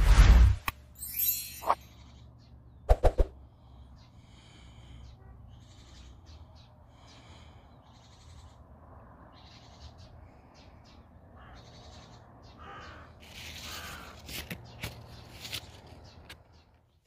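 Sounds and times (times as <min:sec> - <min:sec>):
birds cawing harshly: 0:03.7 - 0:08.7, 0:09.3 - 0:15.2.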